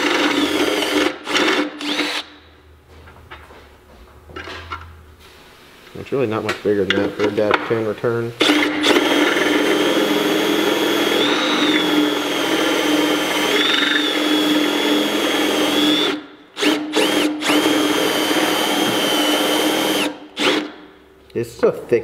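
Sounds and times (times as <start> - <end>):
cordless drill boring metal: 0.0 - 2.3, 8.4 - 20.7.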